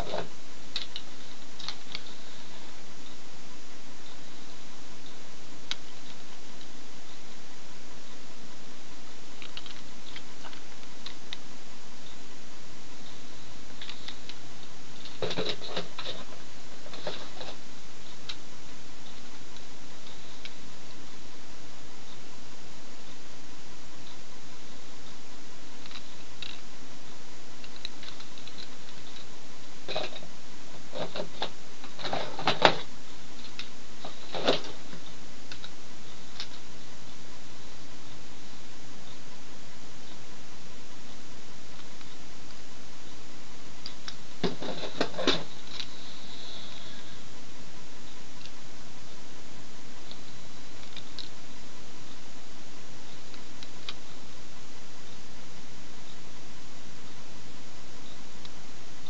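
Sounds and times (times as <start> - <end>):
steady hiss: 0.0 - 59.0.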